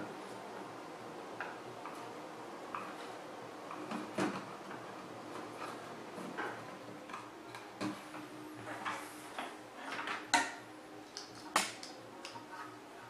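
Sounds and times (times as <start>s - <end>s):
wires rustling: 0.0s - 12.7s.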